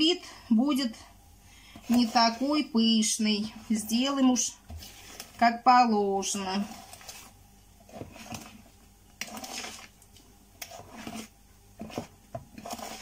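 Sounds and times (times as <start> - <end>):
spoon stirring batter in bowl: 0.8 - 13.0.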